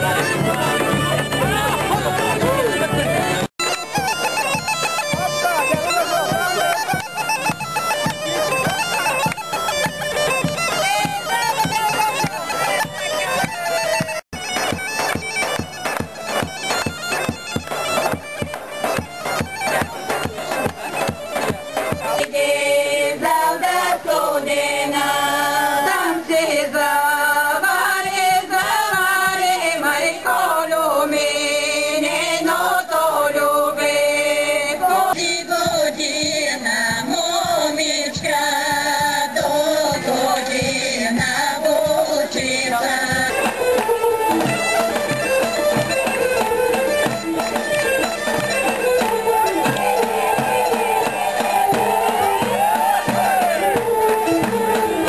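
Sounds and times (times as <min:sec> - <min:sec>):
bagpipe playing fast folk tune: 0:00.0 - 0:38.0, 0:38.8 - 0:55.0
women singing in harmony: 0:22.1 - 0:43.9
steady beat: 0:43.2 - 0:55.0.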